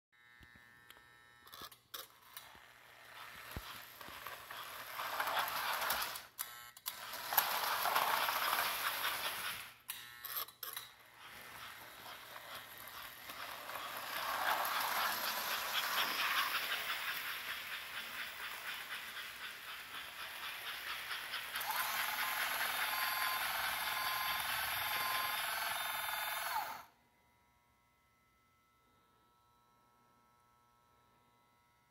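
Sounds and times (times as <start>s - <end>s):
model train running on track: 1.5s - 9.9s, 10.6s - 26.9s.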